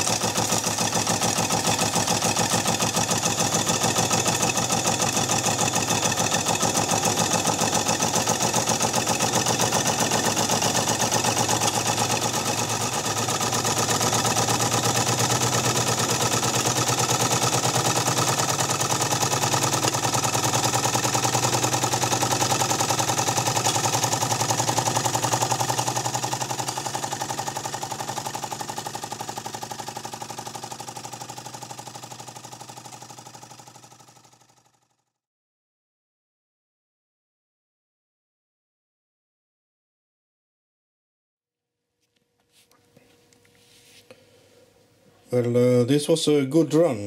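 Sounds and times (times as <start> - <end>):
model steam engine exhaust beat: 0.0 - 34.0.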